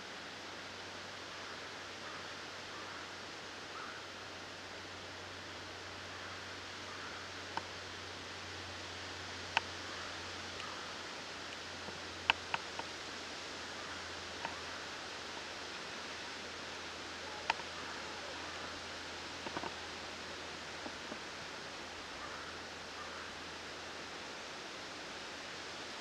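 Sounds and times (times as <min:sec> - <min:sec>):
faint hiss: 0:00.0 - 0:26.0
sharp snaps and clicks: 0:19.4 - 0:19.8.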